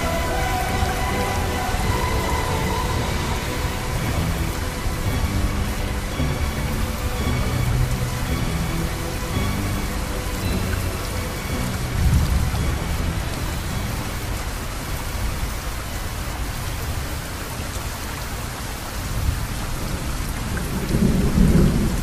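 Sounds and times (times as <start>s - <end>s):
thunder rumble: 0.0s - 15.8s, 19.0s - 22.0s
faint music: 0.0s - 17.5s
heavy rain: 0.0s - 22.0s.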